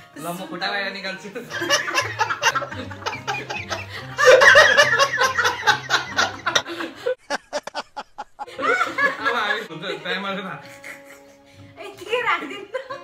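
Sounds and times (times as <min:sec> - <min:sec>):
group of people laughing: 0:01.5 - 0:09.7.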